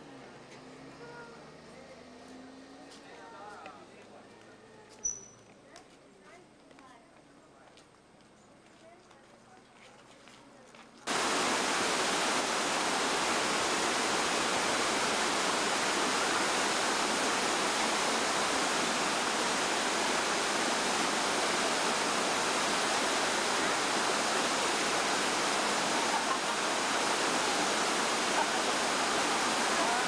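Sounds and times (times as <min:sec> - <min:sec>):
waterfall rushing over rocks: 0:11.1 - 0:30.0.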